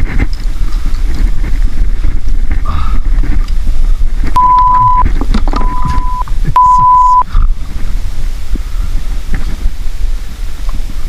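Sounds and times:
wind buffeting microphone: 0:00.0 - 0:11.0
electronic beep: 0:04.4 - 0:07.3.

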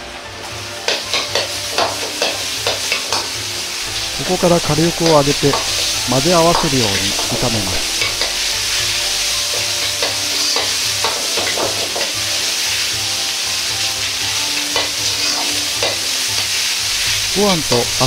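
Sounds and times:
rice sizzling in a wok: 0:00.0 - 0:18.0
metal ladle scraping a wok: 0:07.1 - 0:12.8, 0:14.6 - 0:17.3.

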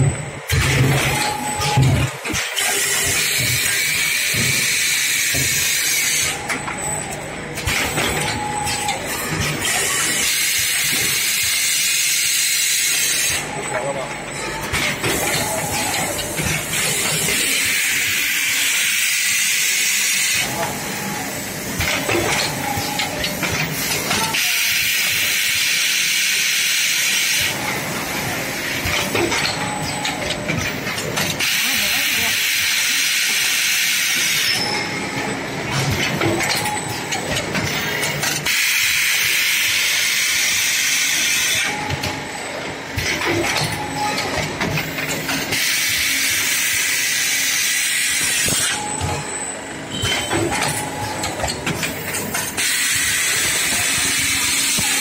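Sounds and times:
machine clatter and clicks: 0:00.4 - 0:13.9, 0:14.6 - 0:18.8, 0:21.7 - 0:28.1, 0:28.7 - 0:49.3, 0:49.9 - 0:55.0
machine hissing: 0:51.8 - 0:55.0.

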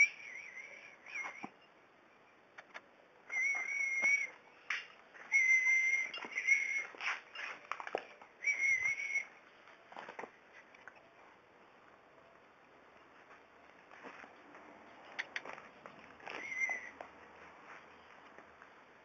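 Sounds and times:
puppies whining: 0:00.0 - 0:01.7, 0:03.3 - 0:04.4, 0:05.2 - 0:10.3, 0:15.2 - 0:17.5
clicks and scuffs: 0:02.5 - 0:11.0, 0:13.1 - 0:18.8.

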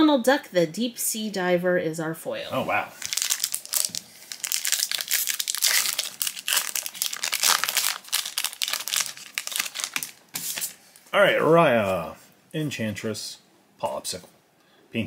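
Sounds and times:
foil wrapper crinkling and tearing: 0:03.0 - 0:10.8.

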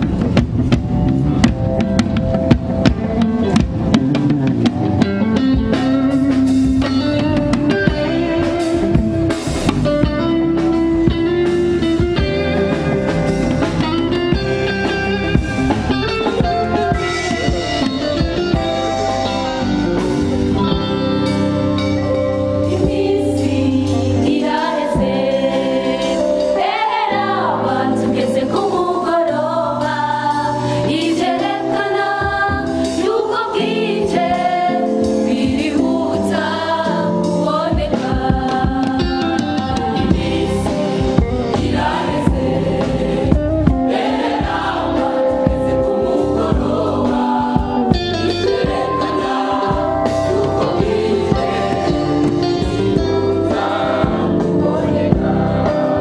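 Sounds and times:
electric guitar: 0:00.0 - 0:26.6, 0:38.0 - 0:56.0
drum kit: 0:00.0 - 0:56.0
electronic keyboard: 0:00.0 - 0:56.0
choir singing: 0:07.8 - 0:09.6, 0:15.3 - 0:56.0.

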